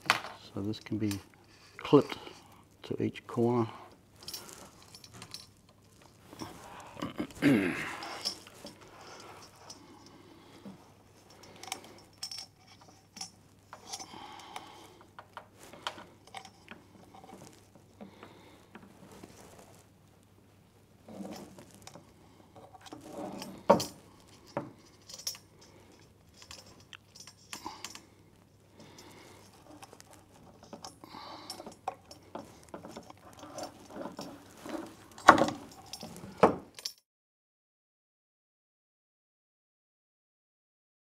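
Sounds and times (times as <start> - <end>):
small metallic clicks and rattles: 0.0 - 2.3, 11.2 - 18.9, 21.1 - 37.0.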